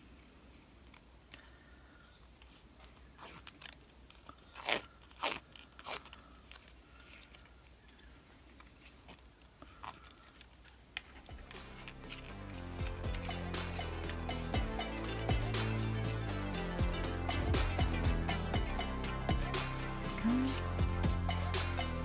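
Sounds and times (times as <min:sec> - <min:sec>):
paper strip crackling: 0:02.2 - 0:14.6.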